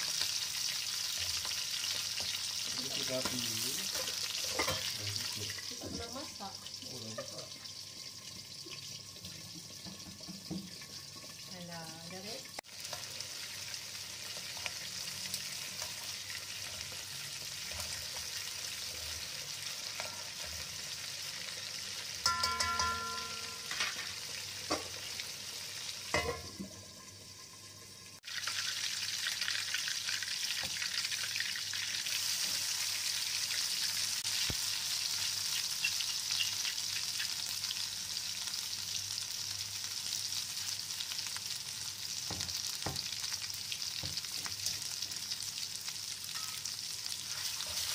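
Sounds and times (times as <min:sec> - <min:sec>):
hot oil sizzling in a pan: 0:00.0 - 0:47.9
short ring: 0:22.3 - 0:23.8
metallic clanks: 0:22.3 - 0:24.1.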